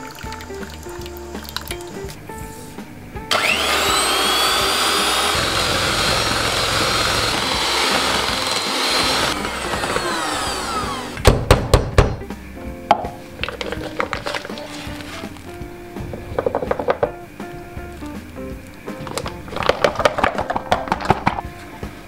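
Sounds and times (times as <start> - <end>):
background music: 0.0 - 22.0
electric hand mixer whining: 3.3 - 11.2.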